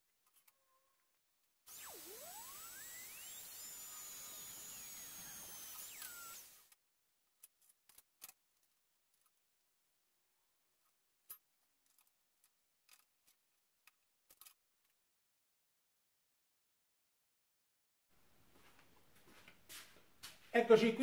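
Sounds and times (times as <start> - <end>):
small steel parts clicking: 7.3 - 9.4, 10.8 - 15.0.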